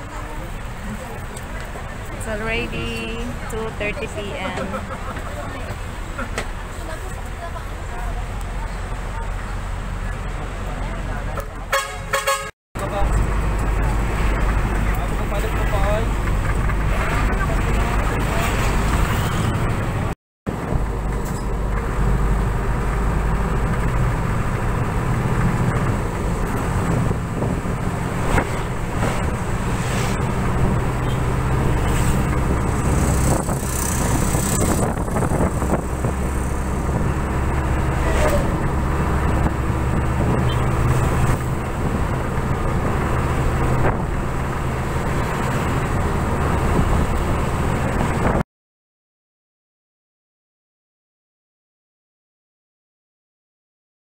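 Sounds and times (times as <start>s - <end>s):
bus engine and road drone: 0.0s - 48.4s.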